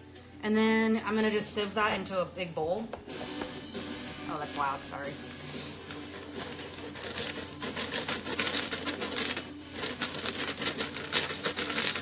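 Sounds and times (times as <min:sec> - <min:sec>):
flour sifted through metal sieve: 0:04.9 - 0:12.0.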